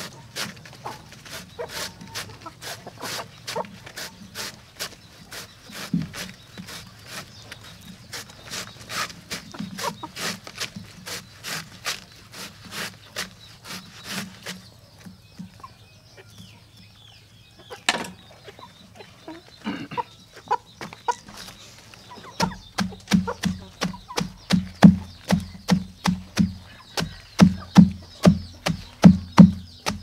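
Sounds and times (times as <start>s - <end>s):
hens clucking: 0.0s - 30.0s
cleaver chopping on wooden log: 22.4s - 30.0s.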